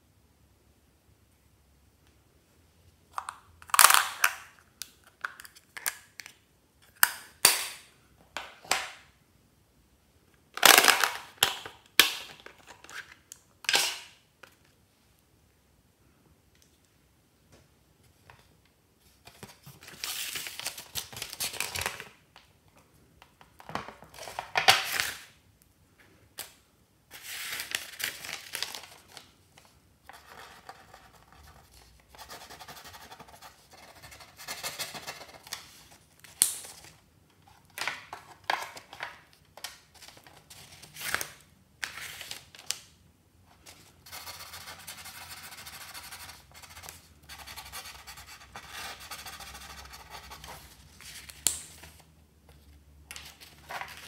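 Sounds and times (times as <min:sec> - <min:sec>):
paper and plastic rustling: 0:52.6 - 0:54.0.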